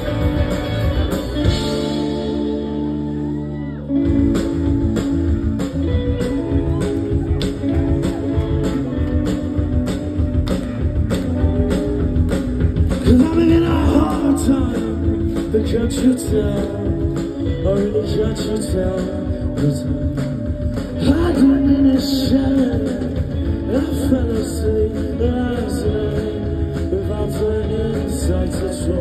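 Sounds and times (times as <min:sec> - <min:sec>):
guitars and bass: 0:00.0 - 0:29.0
drum beat: 0:04.0 - 0:28.8
person singing: 0:12.9 - 0:29.0.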